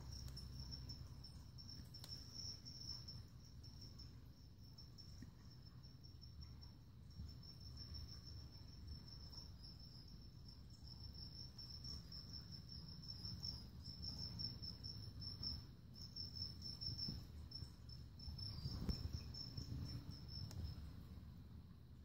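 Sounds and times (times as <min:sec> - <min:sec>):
cricket chirping: 0:00.0 - 0:22.0.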